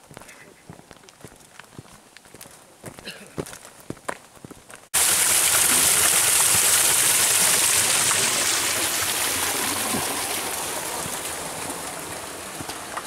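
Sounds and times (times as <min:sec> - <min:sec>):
water rushing: 0:05.0 - 0:13.0.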